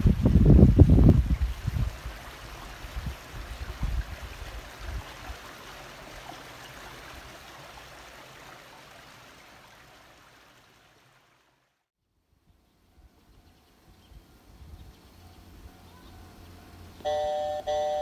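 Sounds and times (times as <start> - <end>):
wind thumps on microphone: 0.0 - 2.2.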